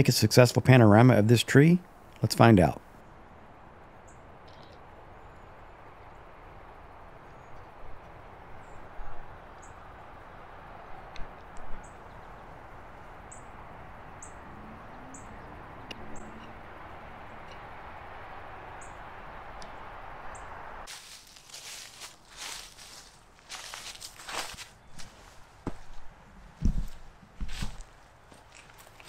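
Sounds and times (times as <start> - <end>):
steady low rush: 2.8 - 24.5
bird chirping: 4.0 - 6.3, 11.8 - 18.0, 18.6 - 20.6.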